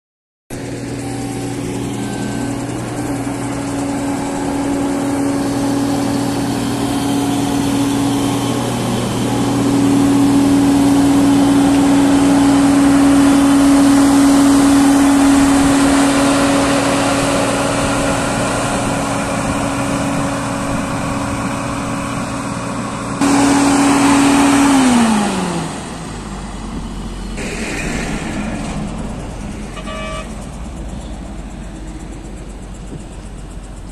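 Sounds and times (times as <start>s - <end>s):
milling machine grinding asphalt: 0.6s - 26.3s.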